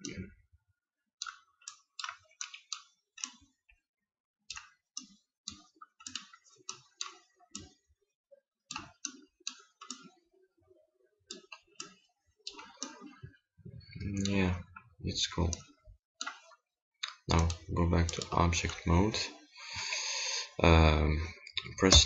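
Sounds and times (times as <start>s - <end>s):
computer mouse clicking: 1.2s - 3.6s, 4.5s - 7.8s, 15.5s - 18.3s.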